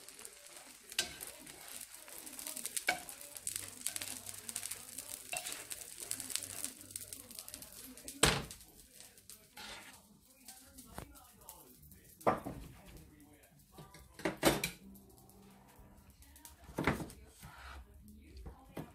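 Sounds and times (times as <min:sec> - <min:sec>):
omelette sizzling in oil: 0:00.0 - 0:12.1
plastic spatula scraping pan: 0:09.5 - 0:10.0, 0:16.9 - 0:17.9.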